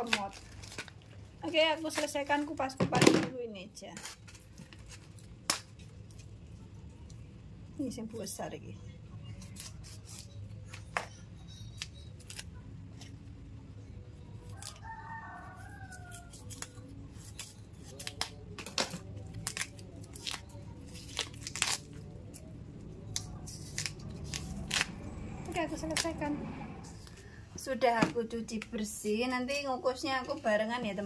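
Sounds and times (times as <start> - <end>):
knife scraping peel: 4.0 - 5.3, 9.4 - 13.2, 14.4 - 14.9, 15.6 - 18.6, 19.3 - 22.5, 23.1 - 25.0
rooster crowing: 14.4 - 16.7.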